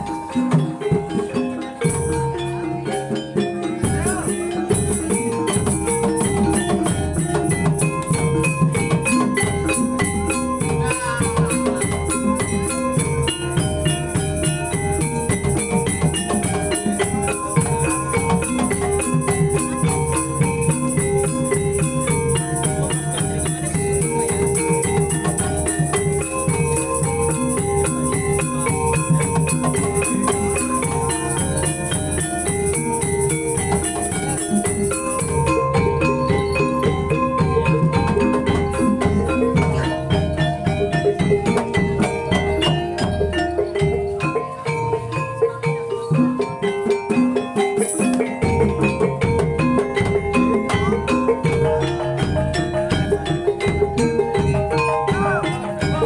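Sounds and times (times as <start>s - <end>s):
gamelan ensemble playing: 0.0s - 56.0s
hand drums: 0.0s - 56.0s.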